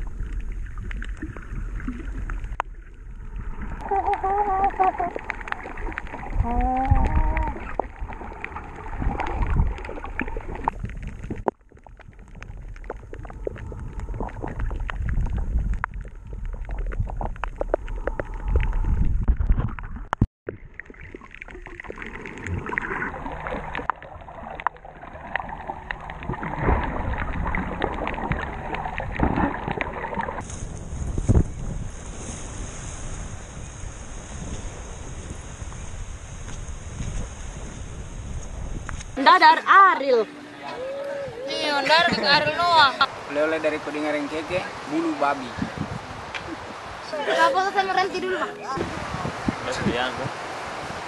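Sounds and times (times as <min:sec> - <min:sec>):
underwater bubbles: 0:00.0 - 0:30.5
sloshing water: 0:00.0 - 0:33.4
wind on microphone: 0:03.2 - 0:20.1, 0:26.2 - 0:39.2, 0:45.4 - 0:51.0
muffled vocal sounds: 0:03.8 - 0:05.1, 0:06.4 - 0:07.7.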